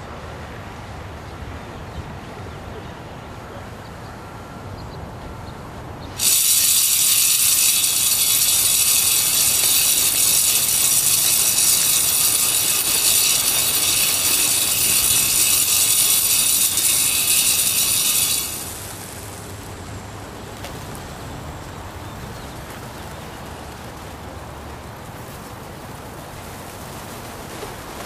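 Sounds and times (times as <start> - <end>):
bait feeder whirring rattle: 6.1 - 20.2.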